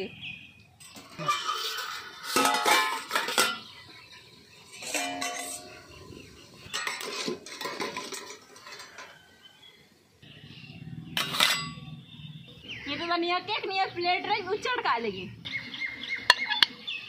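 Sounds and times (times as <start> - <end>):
metal cookware clanking: 0.8 - 9.3, 11.2 - 11.9, 16.3 - 16.7.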